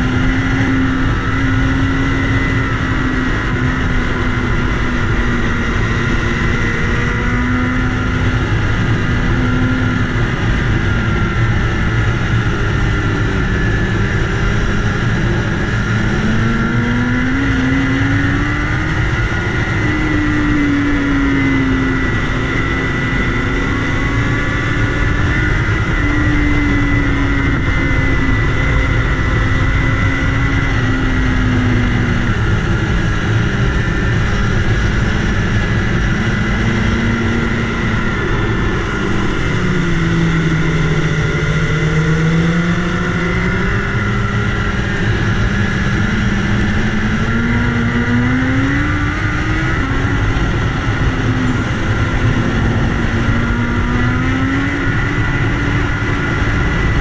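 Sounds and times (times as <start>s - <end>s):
motorcycle engine running: 0.0s - 57.0s
wind noise: 0.0s - 57.0s.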